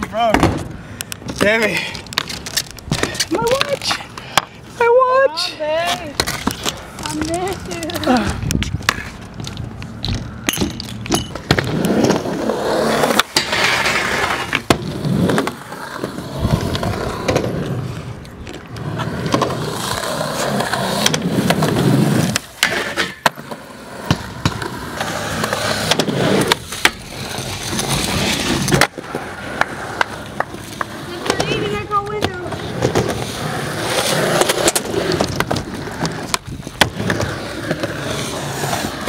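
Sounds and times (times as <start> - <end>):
skateboard clacks: 0.0 - 4.6, 5.8 - 39.0
skateboard wheels rolling on concrete: 0.0 - 39.0
skateboard grinding metal rail: 10.1 - 18.1, 18.8 - 39.0.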